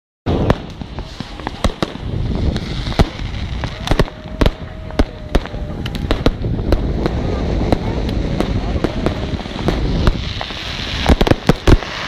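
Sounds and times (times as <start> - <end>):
fireworks bangs: 0.3 - 12.0
rumble of distant explosions: 0.3 - 12.0.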